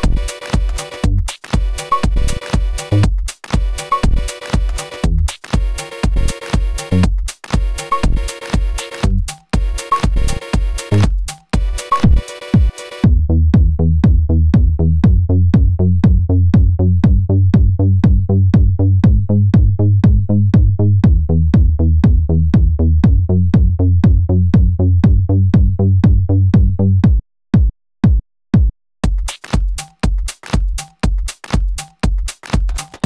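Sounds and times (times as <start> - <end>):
drum machine beat: 0.0 - 33.0
heavy bass line: 5.0 - 5.3, 10.1 - 27.2.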